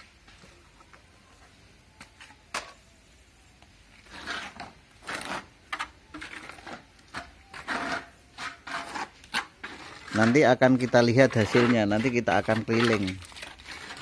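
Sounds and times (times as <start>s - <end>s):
trowel scraping wet cement: 4.0s - 14.0s.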